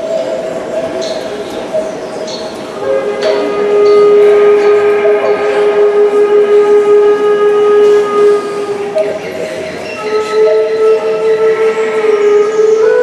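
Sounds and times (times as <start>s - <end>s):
folk wind instrument: 2.8s - 13.0s.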